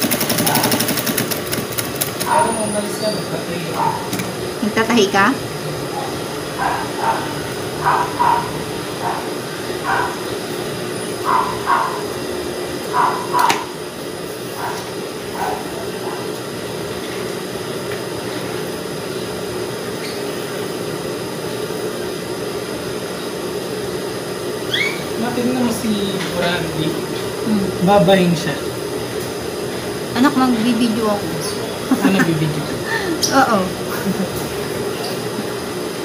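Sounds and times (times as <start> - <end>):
machine hum: 0.0 - 36.0
dog barking: 2.2 - 2.6, 3.7 - 4.2, 5.9 - 10.2, 11.2 - 12.1, 12.9 - 13.8, 14.6 - 16.4.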